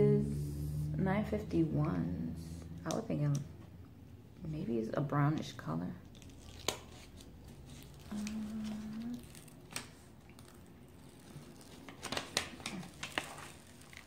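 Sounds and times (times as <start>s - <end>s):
person humming: 8.0s - 9.5s.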